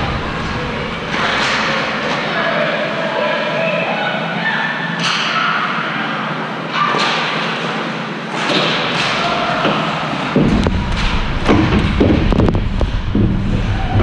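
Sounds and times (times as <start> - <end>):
low rumble: 0.0 - 1.5, 10.4 - 14.0
steady background noise: 0.0 - 14.0
sharp knocks: 10.4 - 13.6
thumps and knocks: 10.4 - 14.0.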